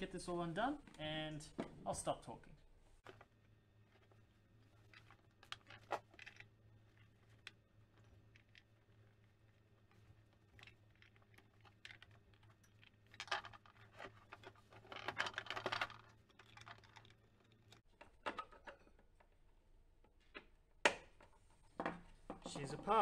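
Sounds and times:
plastic clicking and scraping: 3.0s - 19.3s.

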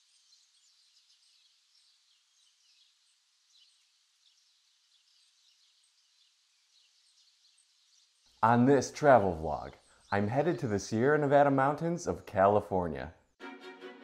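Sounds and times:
forest ambience hiss: 0.0s - 10.9s
small birds chirping: 0.0s - 12.9s.

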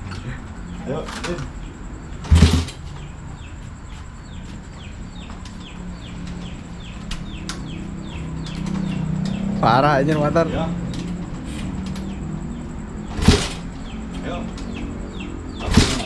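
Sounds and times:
motorcycle engine idling: 0.0s - 16.0s
loud knock: 13.1s - 13.7s, 15.6s - 16.0s.

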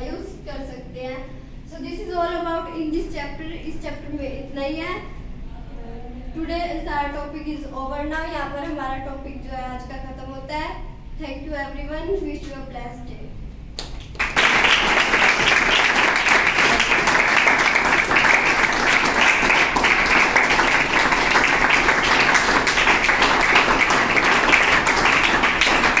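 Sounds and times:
students applauding: 13.8s - 26.0s.

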